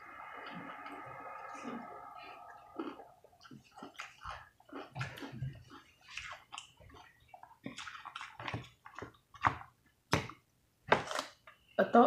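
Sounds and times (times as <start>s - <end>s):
wet chewing and lip smacking: 1.9s - 9.4s.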